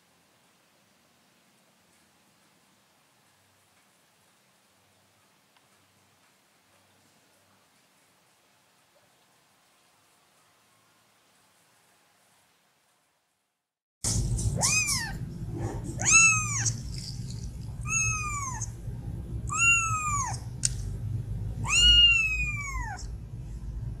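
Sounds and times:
low rumble: 14.0s - 24.0s
kitten meowing: 14.6s - 15.2s, 16.0s - 17.0s, 17.8s - 18.8s, 19.5s - 20.5s, 21.6s - 23.1s.

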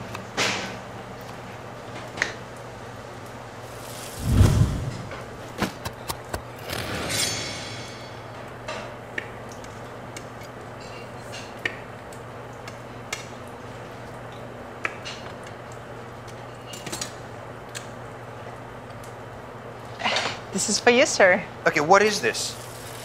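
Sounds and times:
steady low hum: 2.6s - 11.2s
rattling kitchen clatter: 5.1s - 9.0s.

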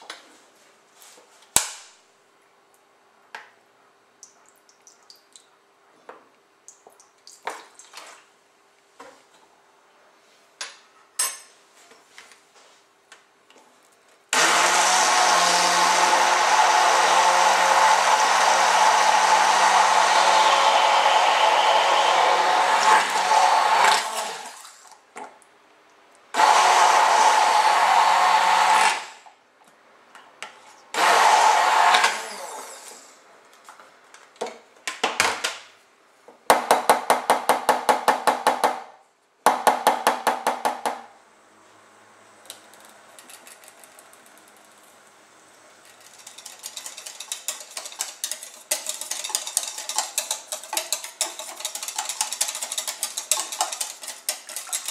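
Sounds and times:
immersion blender running: 14.4s - 24.6s, 26.4s - 29.2s, 31.0s - 32.9s.

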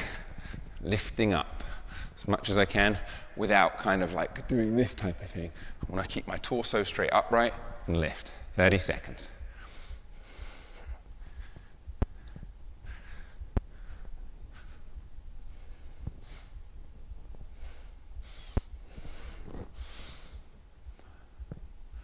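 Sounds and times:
man breathing: 0.0s - 3.4s, 5.5s - 5.9s, 9.4s - 22.0s.

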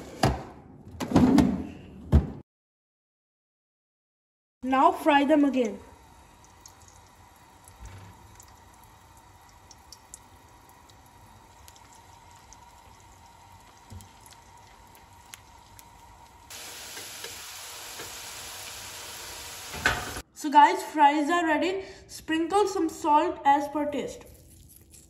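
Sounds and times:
fries sizzling in hot oil: 5.2s - 20.2s.

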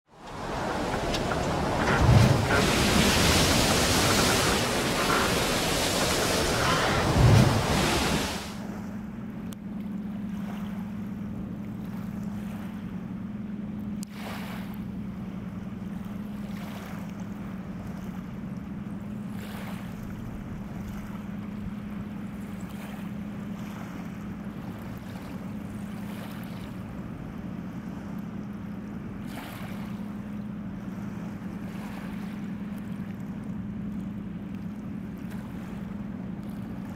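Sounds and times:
rush of wind: 0.1s - 8.6s
faint water noise: 0.1s - 8.7s
boat engine droning: 0.1s - 36.9s
waves: 0.1s - 36.9s.

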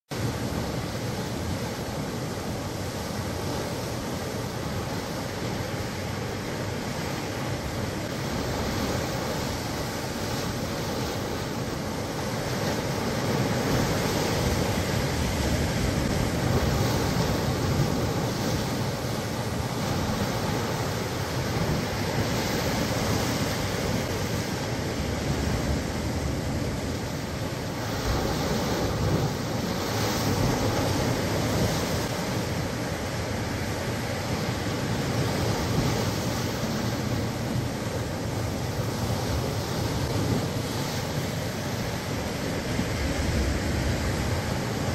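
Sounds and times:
waves breaking over rocks: 0.2s - 44.9s.

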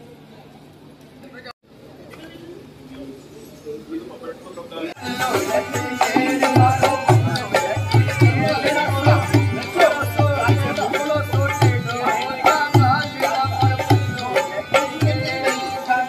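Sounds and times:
dholak drum beats: 5.0s - 16.0s
harmonium chords: 5.0s - 16.0s.

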